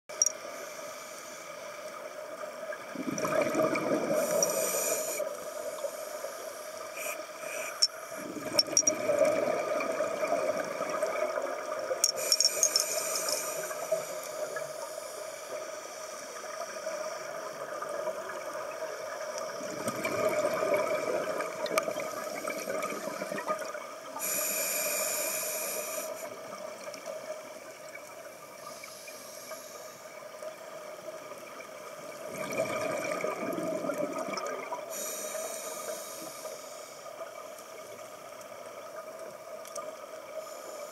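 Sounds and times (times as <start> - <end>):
scuba regulator hiss: 0.6 - 1.6, 4.2 - 8.2, 12.1 - 17.2, 24.2 - 26.4, 28.6 - 30.1, 34.9 - 37.1
exhaled bubbles rushing: 2.9 - 4.4, 8.2 - 11.7, 19.6 - 23.8, 32.2 - 34.8.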